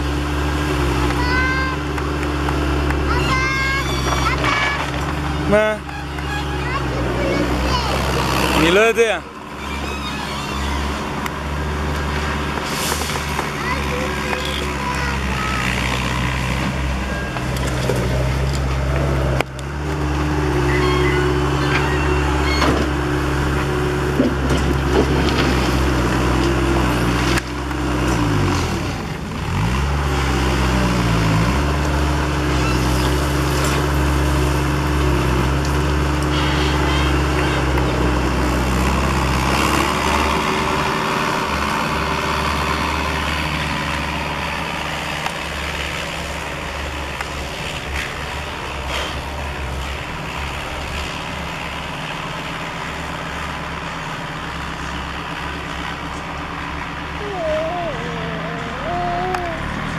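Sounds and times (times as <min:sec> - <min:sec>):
diesel loader engine running: 0:00.0 - 0:59.9.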